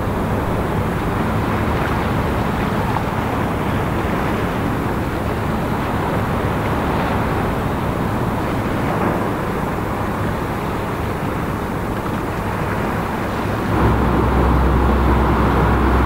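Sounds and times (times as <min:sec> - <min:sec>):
ship engine low drone: 0:00.0 - 0:16.0.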